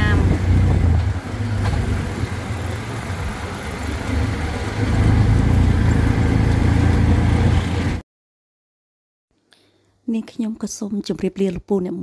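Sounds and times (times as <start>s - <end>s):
road noise: 0.0s - 8.0s
small engine rumbling: 0.0s - 8.0s.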